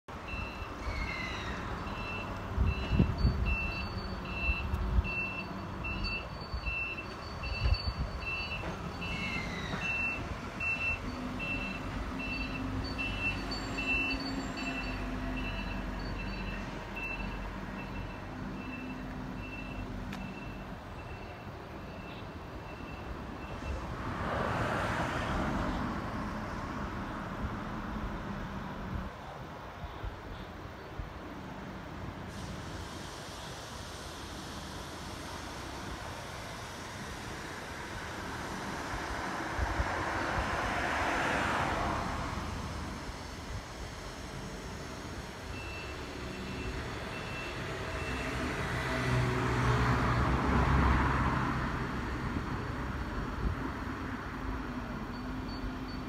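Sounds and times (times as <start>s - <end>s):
reversing alarm beeping: 0.2s - 0.8s, 1.8s - 23.8s, 45.5s - 48.4s, 55.0s - 56.0s
train squealing whine: 0.2s - 23.9s, 42.7s - 49.2s, 54.7s - 56.0s.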